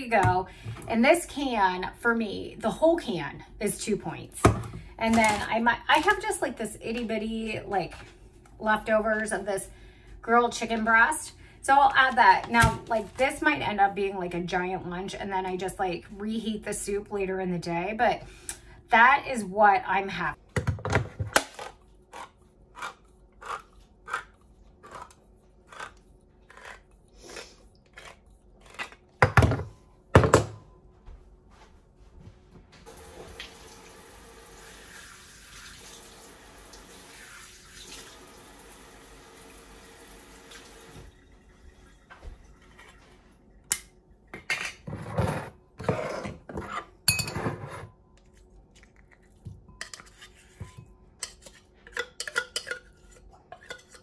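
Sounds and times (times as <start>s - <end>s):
tap water running into sink: 32.9s - 42.2s.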